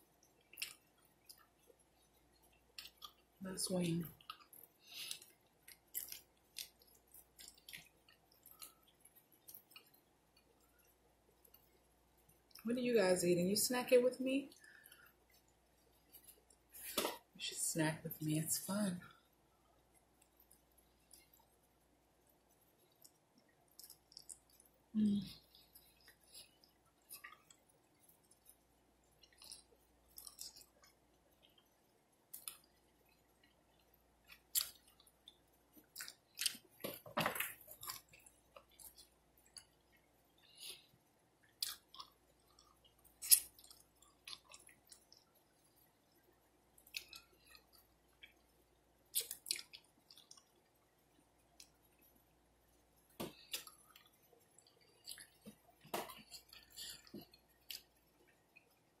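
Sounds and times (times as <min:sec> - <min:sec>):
wet chewing mouth clicks and smacks: 0:00.2 - 0:03.4, 0:04.2 - 0:12.6, 0:22.5 - 0:24.8, 0:25.4 - 0:28.6, 0:29.2 - 0:45.9, 0:46.8 - 0:48.5, 0:49.1 - 0:52.1, 0:53.3 - 0:58.8.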